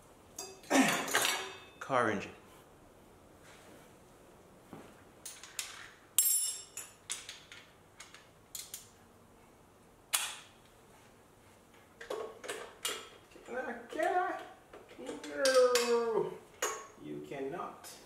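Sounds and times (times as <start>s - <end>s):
metal hand tools clinking: 0.4s - 1.8s.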